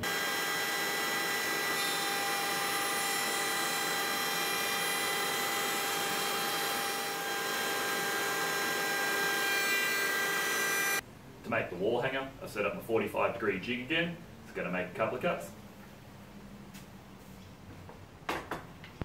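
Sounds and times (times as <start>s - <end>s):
router whining: 0.0s - 11.0s.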